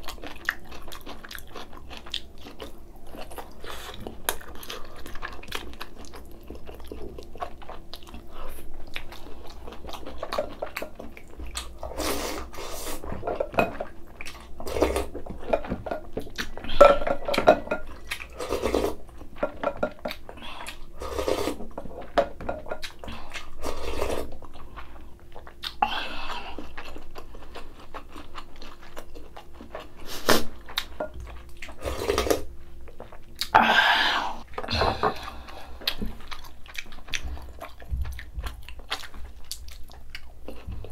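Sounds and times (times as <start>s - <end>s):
crunchy chewing: 0.0s - 13.0s, 35.2s - 40.9s.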